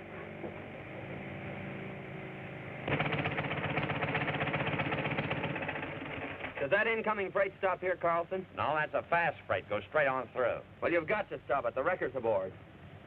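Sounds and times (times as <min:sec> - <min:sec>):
engine with fast even putter: 0:02.8 - 0:06.6.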